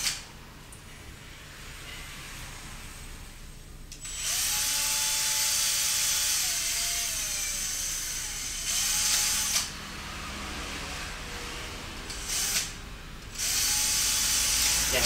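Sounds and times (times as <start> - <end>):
small electric drill drilling: 4.0 - 9.8, 12.1 - 15.0.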